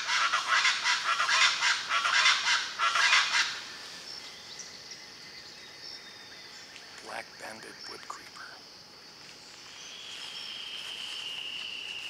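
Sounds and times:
faint high insect tones: 0:00.0 - 0:12.0.

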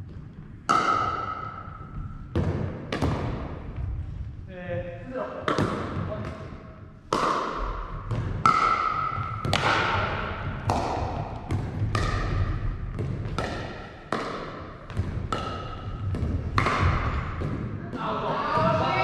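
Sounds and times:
ball bouncing on wooden floor: 0:00.0 - 0:04.2, 0:07.1 - 0:19.0
paddles striking plastic ball: 0:07.1 - 0:17.7.

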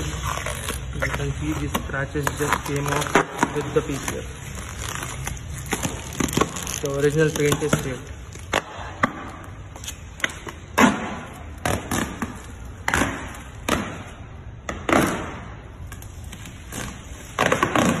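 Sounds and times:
plastic film crackling and crinkling: 0:00.0 - 0:08.5.

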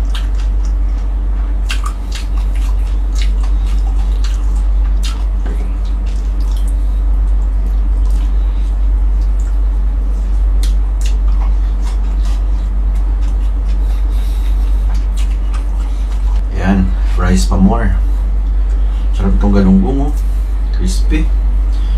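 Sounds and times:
person chewing: 0:00.0 - 0:16.5
loud low hum: 0:00.0 - 0:21.9.

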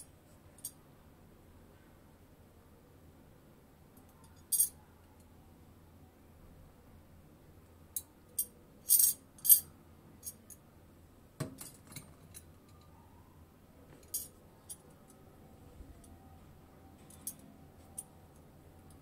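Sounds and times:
metal buckles clinking: 0:08.4 - 0:09.6, 0:17.0 - 0:18.1.

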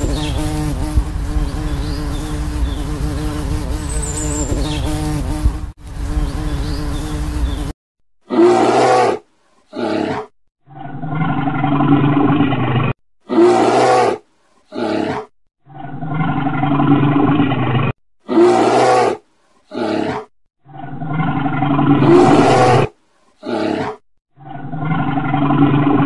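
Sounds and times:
bear roaring: 0:08.2 - 0:26.0.

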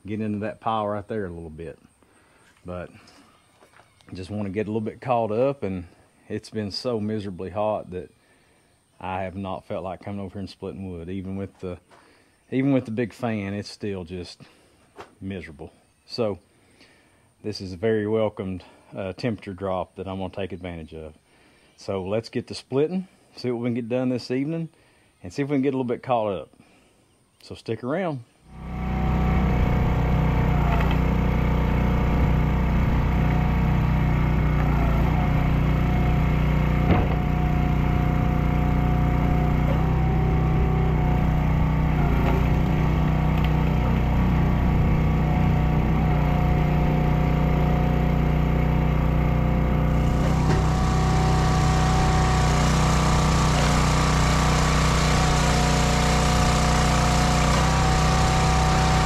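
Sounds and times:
hydraulic log splitter running: 0:28.5 - 0:59.0
wood cracking: 0:41.9 - 0:45.1.

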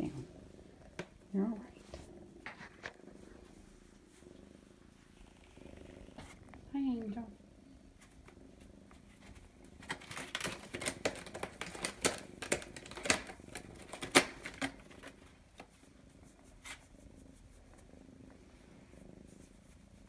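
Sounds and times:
kitten purring: 0:00.0 - 0:20.0
sharp clicks and scratches: 0:09.2 - 0:15.7.

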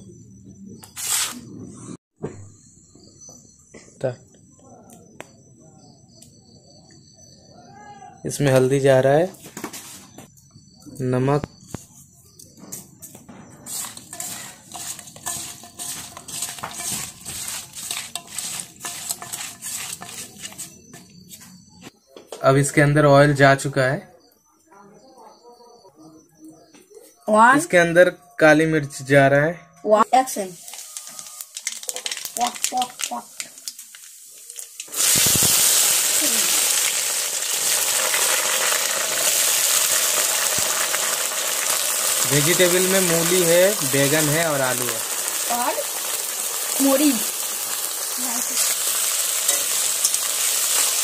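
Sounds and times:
hot oil sizzling: 0:13.4 - 0:21.3, 0:30.1 - 0:51.0
wet fish scraping metal bowl: 0:13.6 - 0:20.9.

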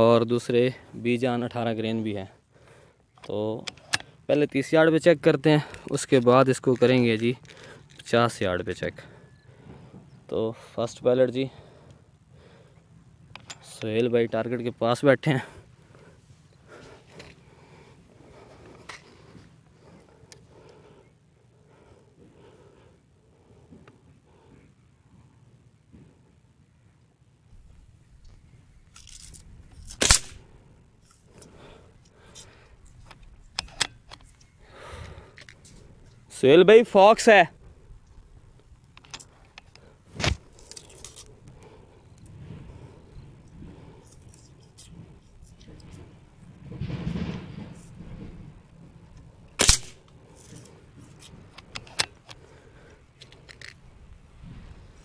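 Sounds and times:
rifle bolt clicks: 0:28.9 - 0:30.4, 0:49.6 - 0:50.2
air rifle shot: 0:30.0 - 0:30.4, 0:49.6 - 0:50.0.

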